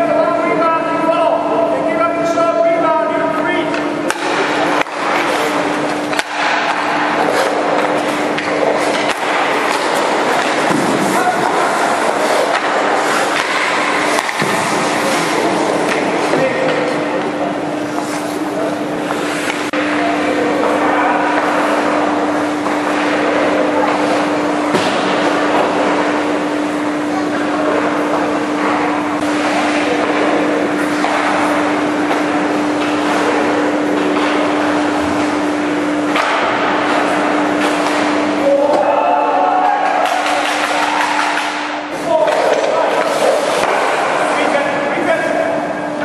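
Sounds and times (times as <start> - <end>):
steady hum: 0.0 - 46.0
hockey stick or puck crack: 3.7 - 18.4, 29.2 - 34.5, 39.8 - 44.6
ice skates scraping ice: 7.2 - 13.4, 17.8 - 19.6.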